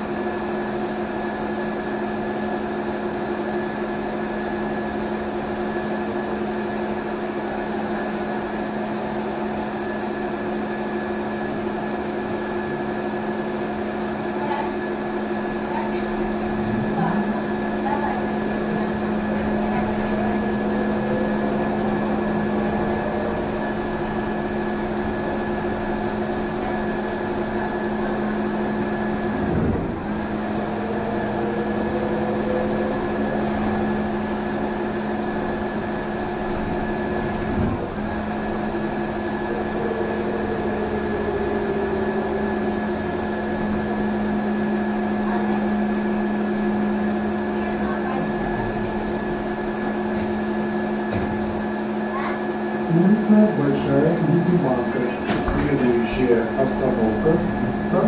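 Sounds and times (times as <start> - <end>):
electrical hum with whine: 18.0 - 50.0
motor whine: 18.3 - 48.2.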